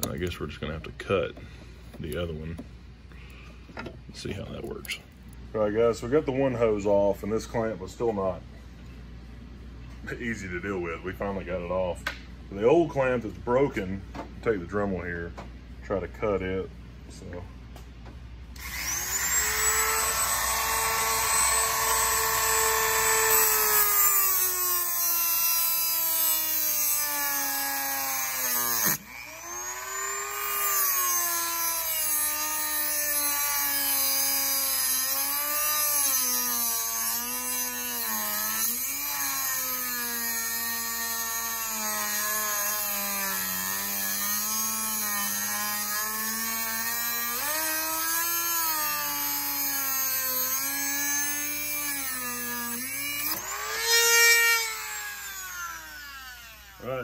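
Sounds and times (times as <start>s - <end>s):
rotary tool cutting metal: 18.6s - 57.0s.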